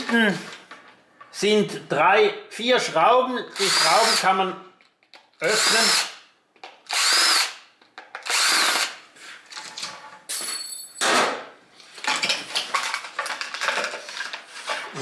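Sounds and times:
plastic housing rustling and scraping: 11.8 - 15.0.

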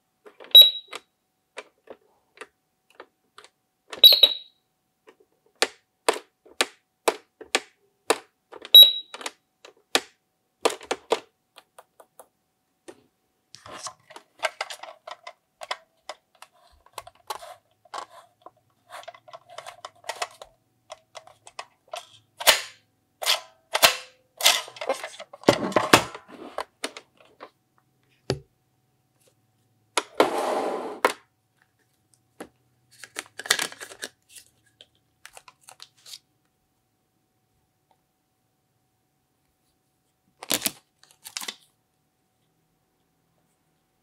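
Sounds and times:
plastic toy buttons clicking: 5.6 - 12.2.

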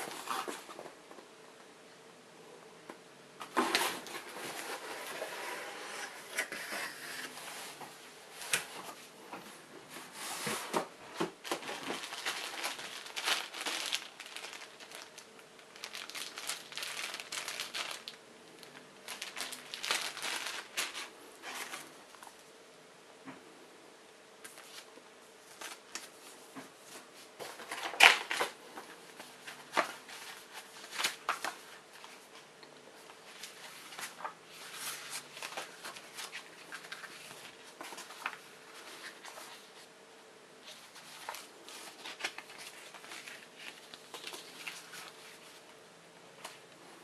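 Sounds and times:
paper rustling: 9.9 - 22.4, 33.2 - 39.9, 40.6 - 45.7.

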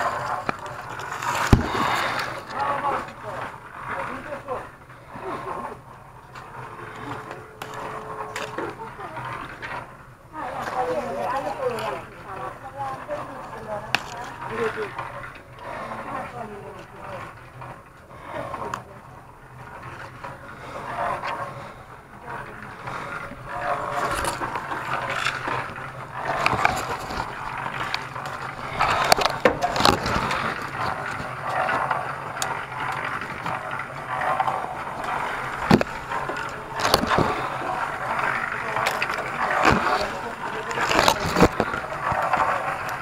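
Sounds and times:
sharp clicks and knocks: 19.6 - 43.0
leaves rustling: 21.5 - 42.9.

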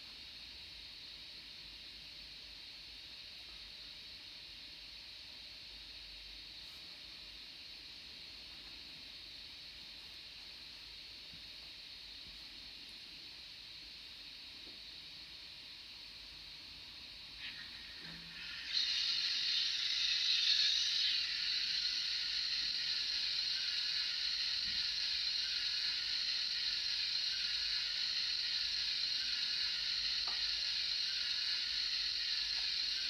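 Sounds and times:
steam locomotive hiss: 11.5 - 33.0.

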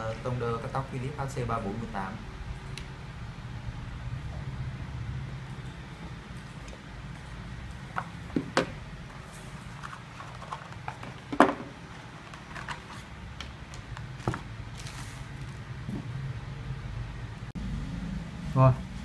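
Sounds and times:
low room hum: 0.0 - 19.0
objects knocking on wooden table: 11.3 - 11.7.

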